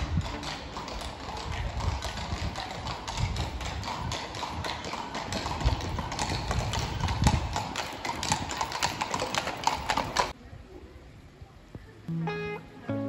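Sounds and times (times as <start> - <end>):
horse hooves clip-clopping on stone: 0.0 - 10.4.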